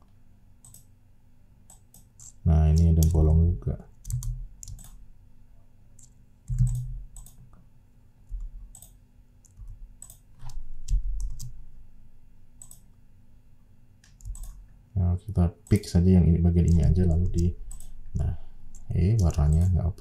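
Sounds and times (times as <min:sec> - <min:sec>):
mouse and keyboard clicks: 0:01.7 - 0:03.2, 0:06.0 - 0:07.5, 0:08.3 - 0:11.5, 0:16.6 - 0:17.9.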